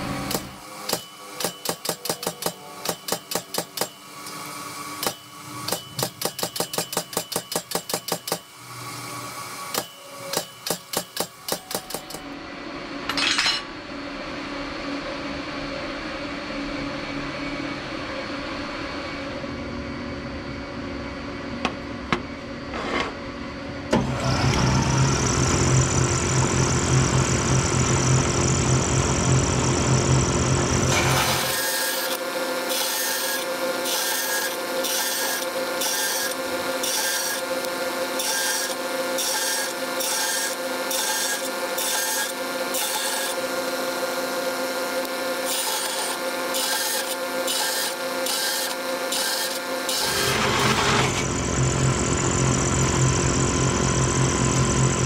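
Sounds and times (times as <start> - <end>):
bandsaw running: 24.0 - 55.0
bandsaw rasping through steel: 30.9 - 51.4.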